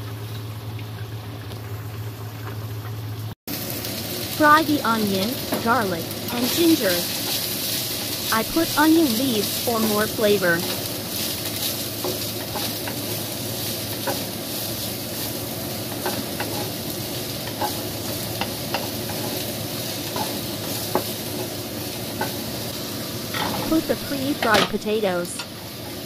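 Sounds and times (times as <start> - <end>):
vegetables sizzling in oil: 3.0 - 26.0
wooden spatula scraping a wok: 10.6 - 21.6.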